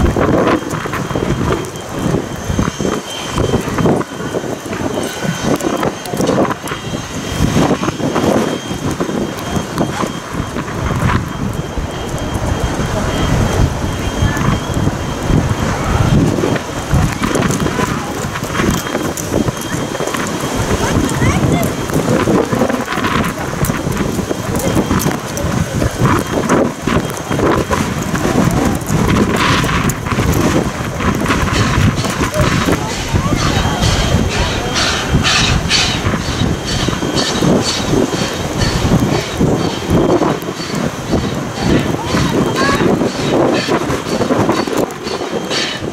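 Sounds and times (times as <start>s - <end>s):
steam locomotive running: 0.0s - 45.9s
wind buffeting microphone: 0.0s - 45.9s
steam hissing: 32.8s - 45.9s.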